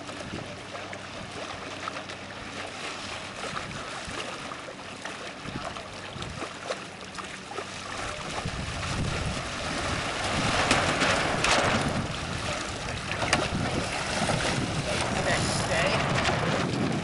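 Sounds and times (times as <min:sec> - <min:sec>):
wind buffeting microphone: 0:00.0 - 0:01.4, 0:03.3 - 0:04.3, 0:05.4 - 0:06.5, 0:07.8 - 0:17.0
water washing: 0:00.0 - 0:17.0.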